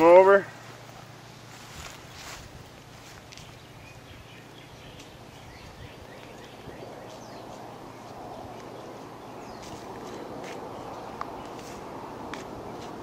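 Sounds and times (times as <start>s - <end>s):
rustling: 0.5s - 3.8s
bird chirping: 2.0s - 13.0s.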